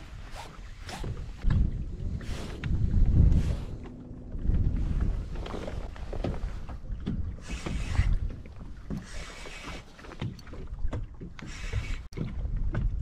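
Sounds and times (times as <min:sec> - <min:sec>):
low wind rumble on microphone: 0:00.0 - 0:13.0
small waves splashing on hull: 0:00.0 - 0:13.0.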